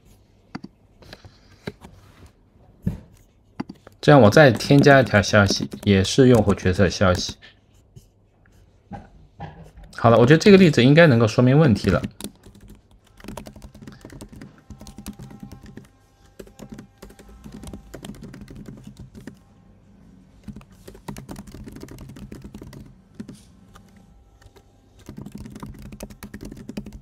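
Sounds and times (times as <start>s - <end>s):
computer keyboard typing: 3.6s - 7.4s, 11.7s - 19.4s, 20.4s - 27.0s.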